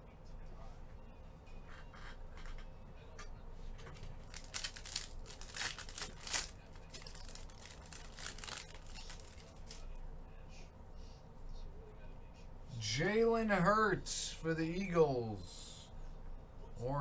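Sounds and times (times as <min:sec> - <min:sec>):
foil wrapper tearing and crinkling: 0:04.2 - 0:09.8.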